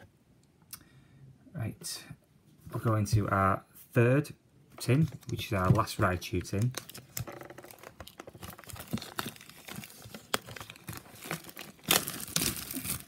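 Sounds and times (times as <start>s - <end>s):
plastic shrink-wrap crinkling: 5.0s - 13.0s.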